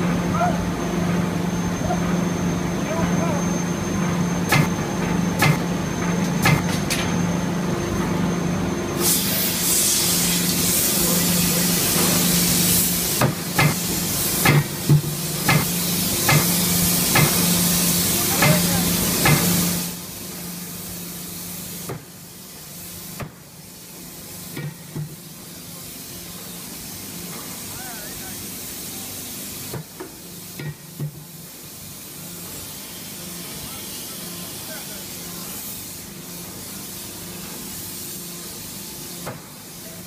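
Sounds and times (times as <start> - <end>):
loud hiss of air: 8.9 - 40.0.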